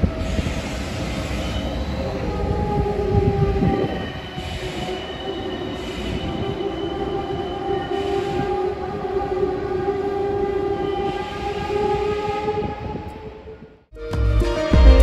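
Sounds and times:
electric train rolling: 0:00.0 - 0:13.8
loud music: 0:13.9 - 0:15.0.

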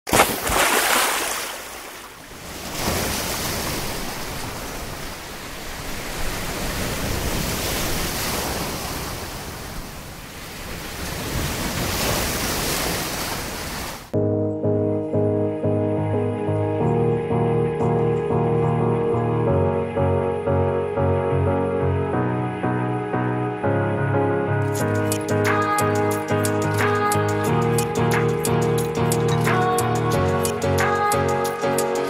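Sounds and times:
surf breaking on a beach: 0:00.1 - 0:14.2
music: 0:14.2 - 0:32.0.

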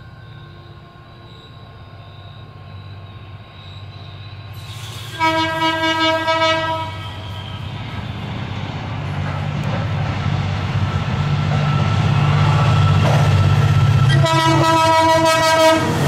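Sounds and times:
diesel locomotive engine rumble: 0:00.0 - 0:16.0
locomotive horn: 0:05.0 - 0:08.2, 0:14.1 - 0:16.0.

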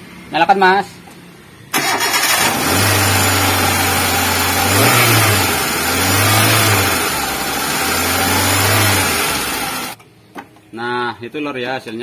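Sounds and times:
car engine running: 0:02.0 - 0:10.0.

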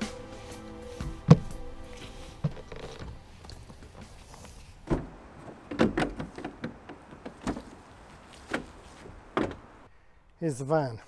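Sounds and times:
knocks and clunks: 0:04.8 - 0:09.9.

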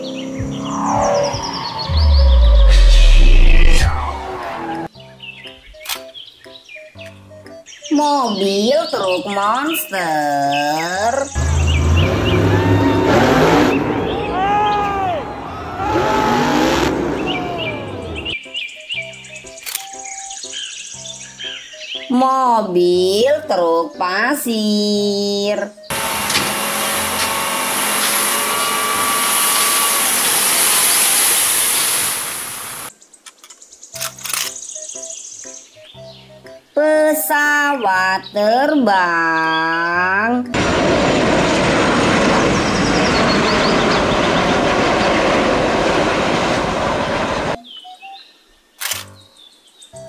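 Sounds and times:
jet airliner taking off: 0:00.0 - 0:04.9, 0:11.4 - 0:18.4, 0:25.9 - 0:32.9, 0:40.6 - 0:47.6
truck engine running hydraulic hoist: 0:25.9 - 0:32.9.

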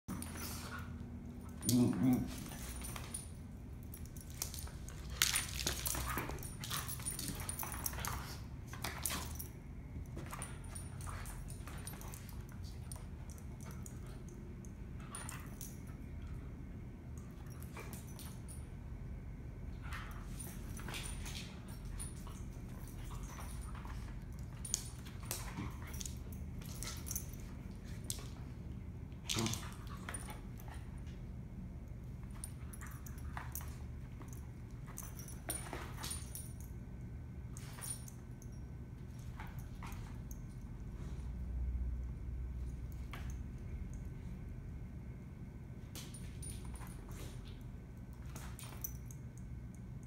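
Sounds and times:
collar tags jingling: 0:01.4 - 0:16.4, 0:19.8 - 0:28.6.

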